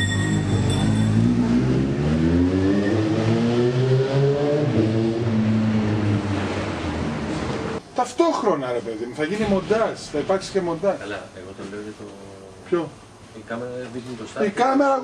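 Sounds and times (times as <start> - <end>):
car engine revving: 0.0 - 7.8.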